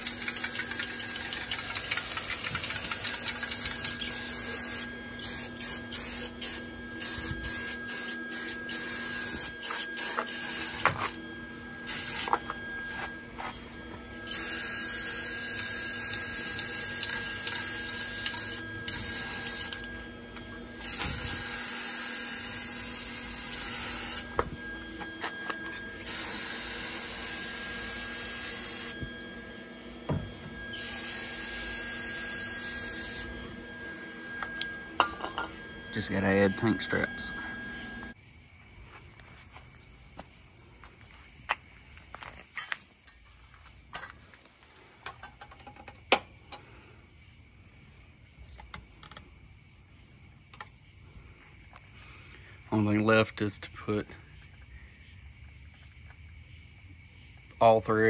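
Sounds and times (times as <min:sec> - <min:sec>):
spray paint can hissing: 0:00.0 - 0:10.9, 0:11.8 - 0:12.4, 0:14.3 - 0:19.8, 0:20.8 - 0:24.3, 0:25.9 - 0:29.0, 0:30.7 - 0:33.3.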